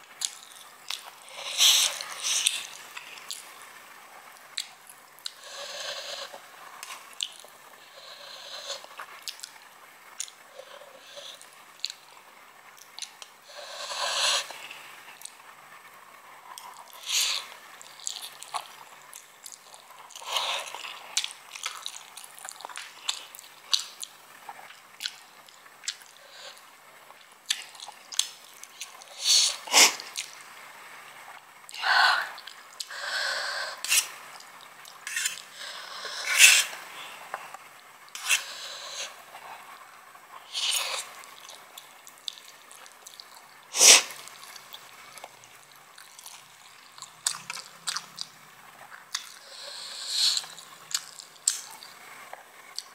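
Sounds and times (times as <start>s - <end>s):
person chewing and slurping noodles: 0.2s - 3.5s, 16.6s - 30.4s, 31.7s - 37.4s, 38.1s - 39.8s, 40.4s - 45.4s, 46.0s - 52.0s
wet mouth clicks: 46.0s - 48.4s, 49.1s - 51.9s.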